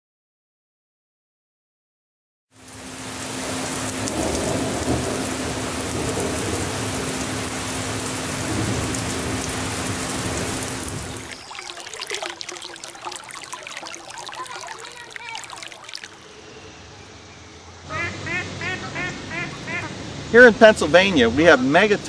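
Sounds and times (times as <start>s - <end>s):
heavy rain through trees: 2.6s - 11.7s
stream trickling over rocks: 9.4s - 16.3s.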